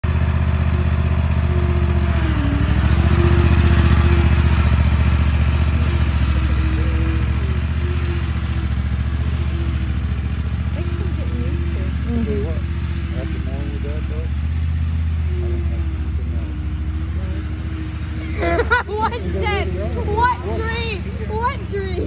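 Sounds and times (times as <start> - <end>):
riding mower engine running: 0.0 - 22.0.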